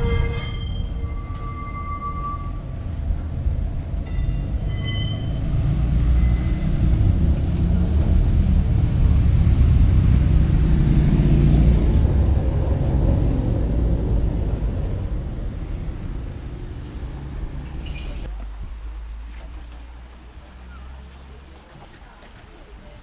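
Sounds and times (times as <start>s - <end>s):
brief high tones: 0.0s - 2.7s
tram wheels rumbling: 0.0s - 18.3s.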